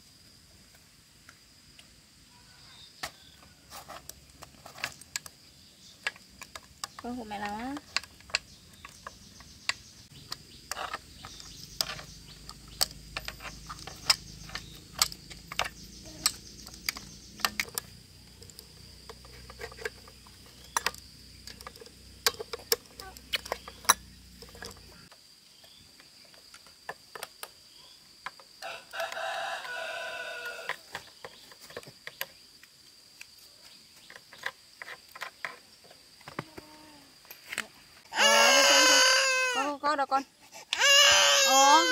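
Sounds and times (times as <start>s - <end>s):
high insect drone: 0.0s - 41.9s
drawn-out chicken call: 28.6s - 30.8s, 38.1s - 39.8s, 40.8s - 41.9s.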